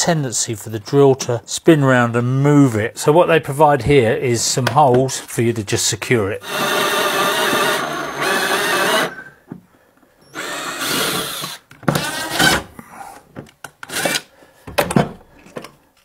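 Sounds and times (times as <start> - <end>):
power drill driving screws: 6.4 - 9.4, 10.2 - 12.7, 13.9 - 14.2.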